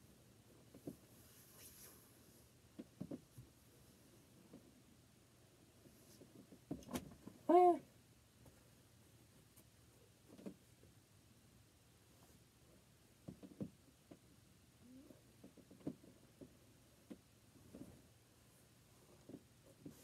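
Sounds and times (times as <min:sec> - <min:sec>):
soft knocks and handling sounds: 0:00.6 - 0:01.4, 0:02.7 - 0:04.8, 0:09.3 - 0:11.0, 0:13.2 - 0:14.4, 0:15.3 - 0:20.0.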